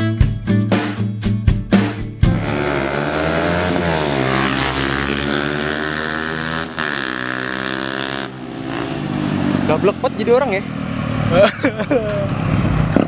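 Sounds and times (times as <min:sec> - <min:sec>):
motorcycle engine accelerating: 0:01.7 - 0:11.4.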